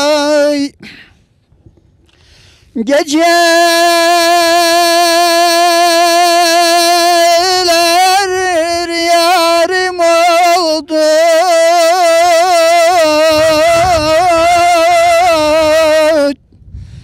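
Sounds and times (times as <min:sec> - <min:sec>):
man singing unaccompanied: 0:00.0 - 0:00.8, 0:02.7 - 0:16.4
short breath: 0:00.8 - 0:02.8, 0:16.6 - 0:17.0.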